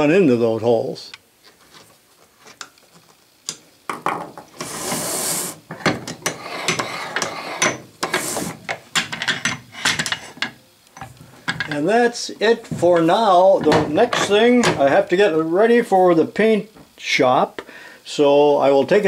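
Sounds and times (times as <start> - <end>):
metal scraping: 4.6 - 8.6.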